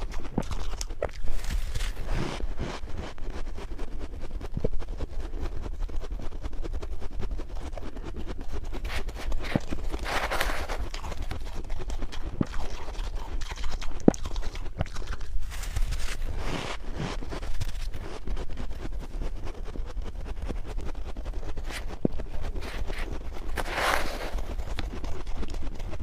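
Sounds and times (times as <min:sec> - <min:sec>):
chewing and crunching frost: 0:00.0 - 0:26.0
metal spoon scraping frost: 0:00.2 - 0:03.2, 0:08.8 - 0:12.5, 0:14.7 - 0:18.4, 0:21.6 - 0:25.2.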